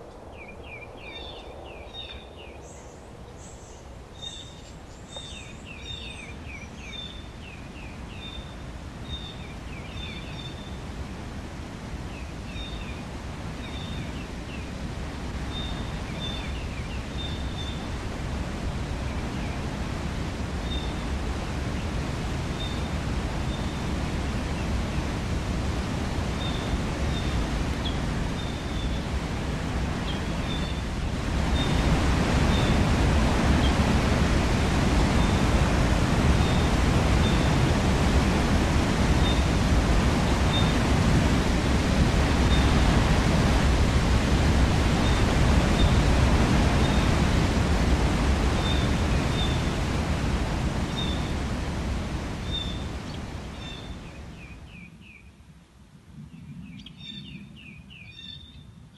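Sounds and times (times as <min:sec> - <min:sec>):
waterfall rushing: 0:12.5 - 0:54.0.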